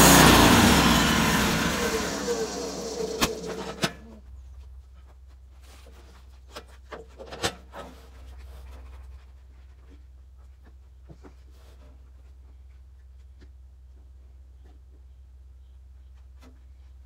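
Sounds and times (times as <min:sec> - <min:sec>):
low steady rumble: 0:00.0 - 0:05.0.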